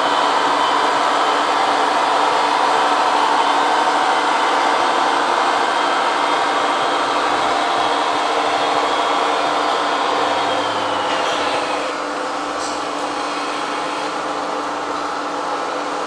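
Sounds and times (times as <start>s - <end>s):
small electric motors whining: 0.0s - 12.0s.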